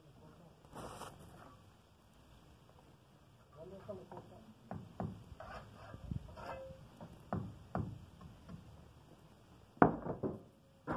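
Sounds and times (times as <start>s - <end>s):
trowel scraping mortar: 5.4s - 6.7s.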